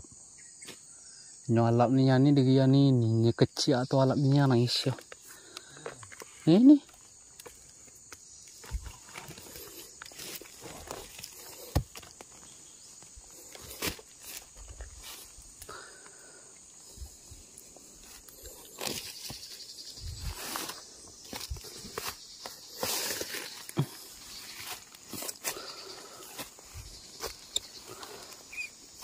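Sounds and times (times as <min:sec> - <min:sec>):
footsteps on dry leaves: 0:08.5 - 0:15.6, 0:17.8 - 0:29.0.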